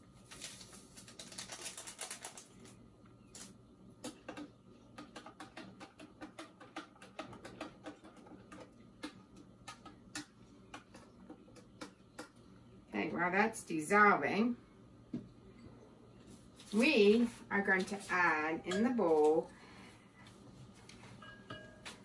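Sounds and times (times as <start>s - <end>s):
packet rustling and clicking: 0.2s - 3.6s.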